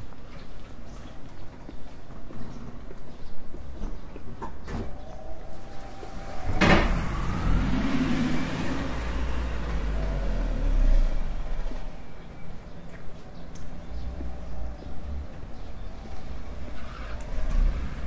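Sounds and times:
motor vehicle passing: 4.9 - 18.0.

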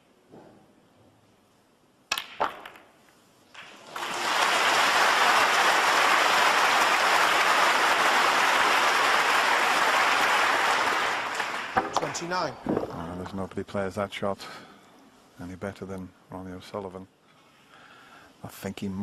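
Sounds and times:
crowd applauding: 3.6 - 12.4
cue striking ball: 11.8 - 13.0
snooker balls clicking: 11.8 - 13.4.

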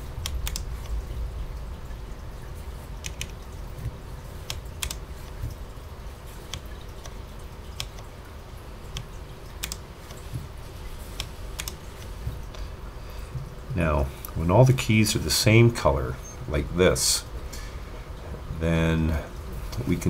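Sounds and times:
clicky keyboard key presses: 0.2 - 0.7, 3.0 - 3.4, 9.0 - 10.5, 11.1 - 12.1.

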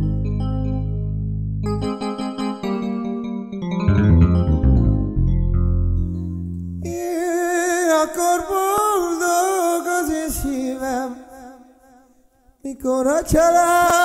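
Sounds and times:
person singing ornamented melody: 6.8 - 11.4.

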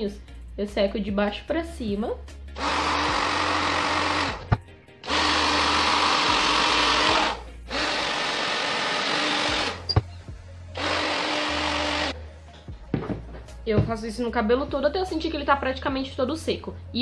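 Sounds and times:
hair dryer blowing: 2.6 - 9.8.

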